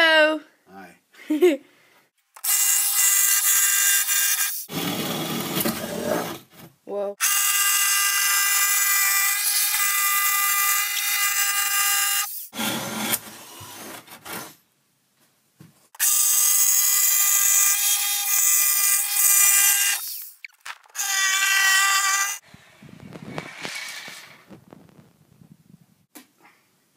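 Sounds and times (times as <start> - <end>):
power tool cutting wood: 7.2 - 13.8, 16.0 - 20.4, 21.0 - 22.5.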